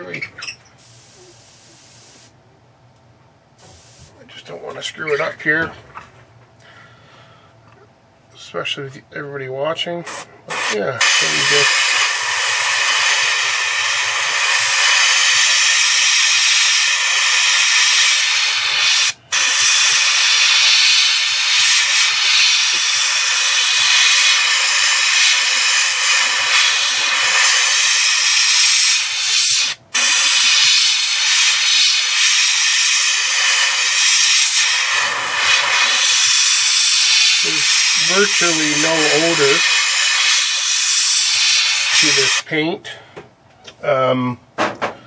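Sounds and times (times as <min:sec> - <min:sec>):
airbrush spraying hiss: 0:00.8 - 0:02.4, 0:03.6 - 0:04.2, 0:10.1 - 0:42.4.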